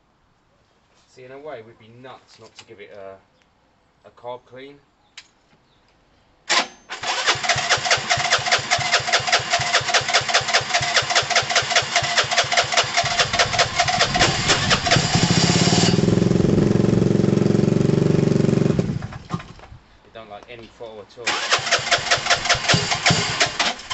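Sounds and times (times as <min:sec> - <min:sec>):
engine cranking on electric starter: 0:06.5 - 0:17.0, 0:21.3 - 0:23.9
engine running steadily: 0:08.0 - 0:19.5.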